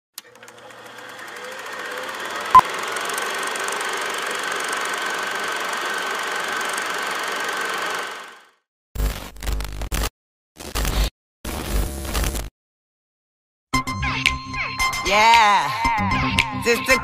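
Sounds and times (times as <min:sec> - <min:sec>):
film projector rattling: 0:00.2 - 0:08.6.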